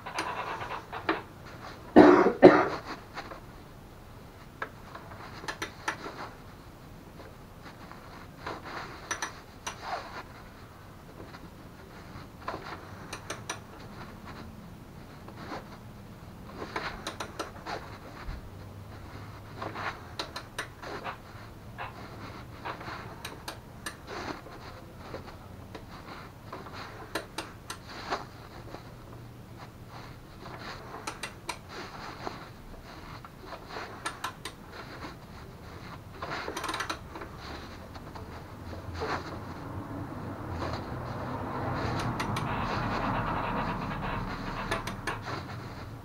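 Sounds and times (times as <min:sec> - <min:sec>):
metal clicks from tools and bolts: 0:09.1 - 0:09.8, 0:36.5 - 0:37.0.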